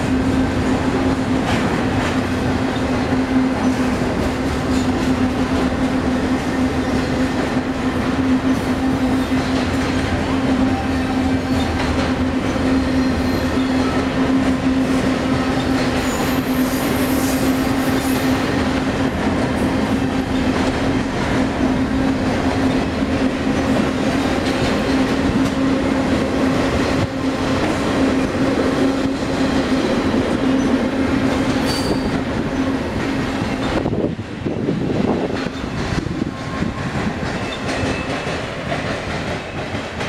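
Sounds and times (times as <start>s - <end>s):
steel wheels rumbling on rail: 0.0s - 40.0s
wheels clicking over rail joints: 34.8s - 40.0s.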